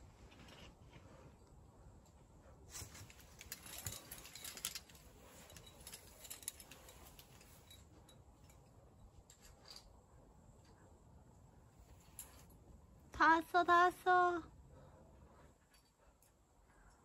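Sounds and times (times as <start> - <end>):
climbing hardware clicking and clinking: 2.7 - 10.0.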